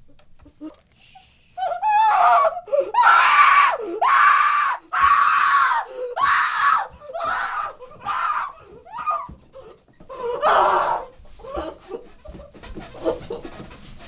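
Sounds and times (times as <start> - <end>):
gagged woman screaming: 1.6 - 9.3, 10.4 - 11.1.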